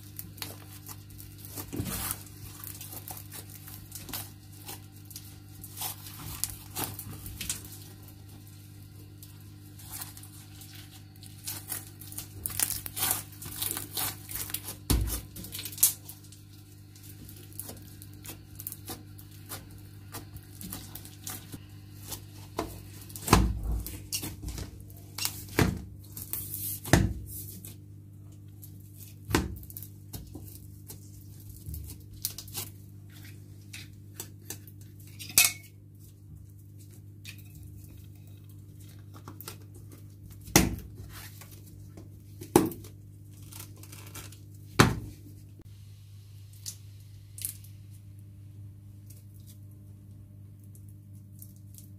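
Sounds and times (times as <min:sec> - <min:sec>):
slime squishing with sticky crackles: 0:00.0 - 0:35.0
steady low hum: 0:00.0 - 0:51.9.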